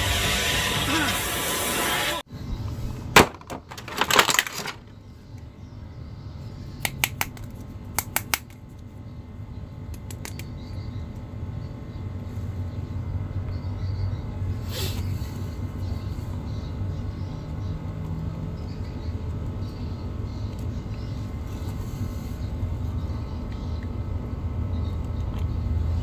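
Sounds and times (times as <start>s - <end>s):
faint low hum: 2.3s - 26.0s
plastic bag crinkling: 3.6s - 4.9s.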